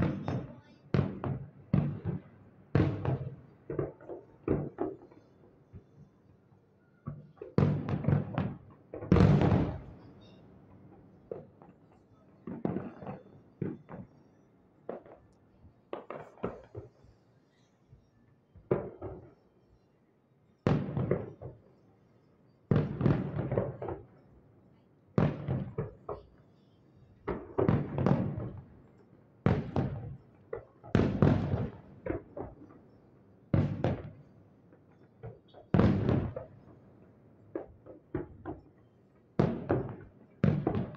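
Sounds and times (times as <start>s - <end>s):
distant fireworks booming: 0.0s - 5.2s, 7.1s - 10.4s, 12.4s - 14.2s, 20.7s - 21.7s, 22.7s - 24.1s, 25.2s - 26.3s, 27.2s - 28.8s, 29.4s - 32.9s, 33.5s - 34.3s, 35.2s - 36.8s, 39.4s - 40.9s.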